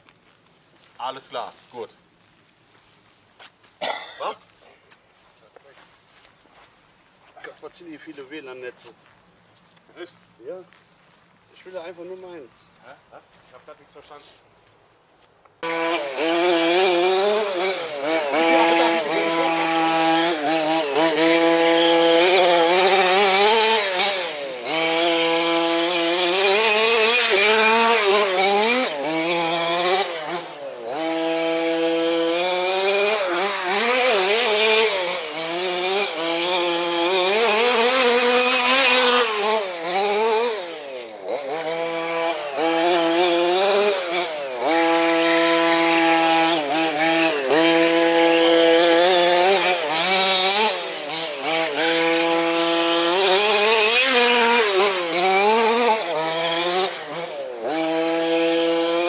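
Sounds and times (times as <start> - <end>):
small two-stroke engine revving: 15.6 - 59.0.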